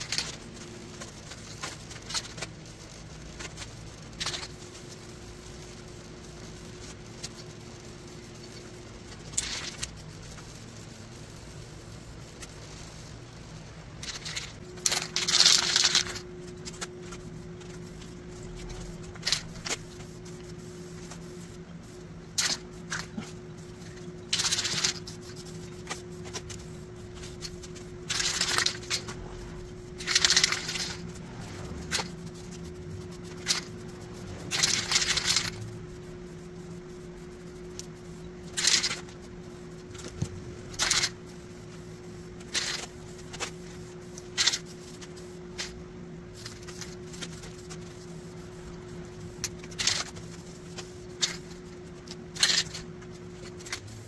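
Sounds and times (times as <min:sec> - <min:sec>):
steady low hum: 0:00.0 - 0:54.0
spray can hissing bursts: 0:14.1 - 0:51.6.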